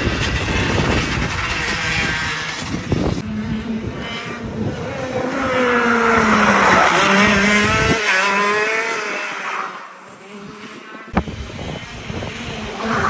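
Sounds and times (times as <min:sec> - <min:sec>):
go-kart engine passing: 0:00.0 - 0:13.0.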